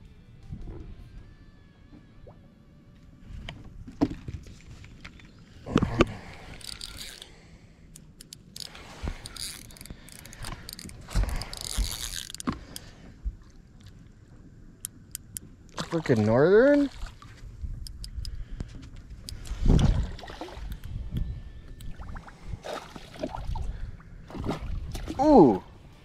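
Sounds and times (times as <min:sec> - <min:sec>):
fishing reel clicking ratchet: 0:06.5 - 0:07.3, 0:07.9 - 0:12.8.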